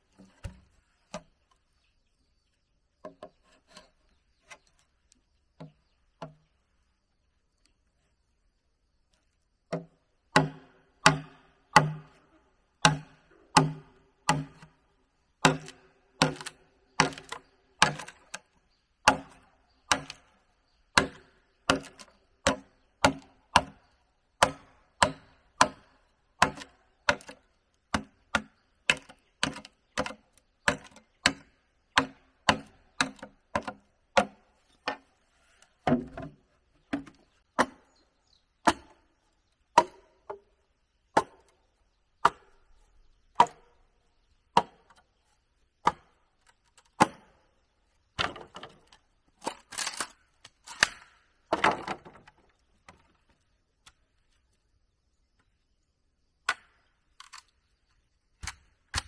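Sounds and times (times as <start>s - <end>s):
wood being chopped: 9.7s - 12.2s, 12.8s - 14.7s, 15.4s - 18.4s, 19.0s - 35.0s, 35.8s - 38.0s, 38.6s - 39.0s, 39.7s - 40.5s, 41.1s - 41.5s, 42.2s - 42.6s, 43.4s - 43.7s, 44.5s - 45.0s, 45.8s - 46.2s, 46.8s - 47.4s, 48.2s - 53.1s, 56.4s - 56.9s, 58.4s - 59.0s.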